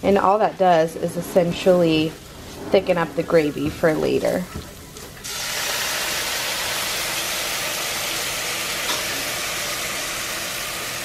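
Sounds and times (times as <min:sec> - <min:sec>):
broth sizzling in a hot pan: 0:05.2 - 0:11.0.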